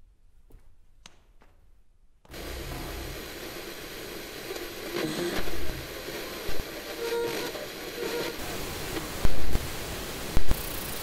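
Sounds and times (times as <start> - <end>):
television static hiss: 2.3 - 11.0.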